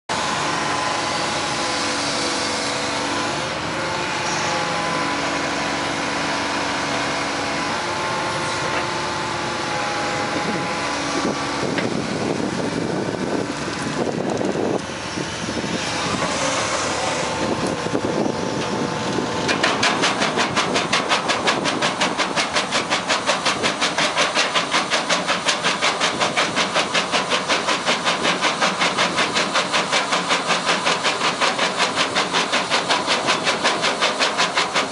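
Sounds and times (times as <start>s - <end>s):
excavator diesel engine: 0.1s - 34.9s
crusher bucket pulsing crushing rock: 7.7s - 34.9s.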